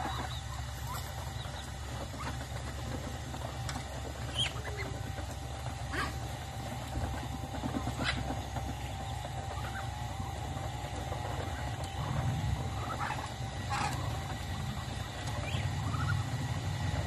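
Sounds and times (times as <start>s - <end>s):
steady low hum: 0.0s - 17.0s
duck calls: 12.0s - 14.2s.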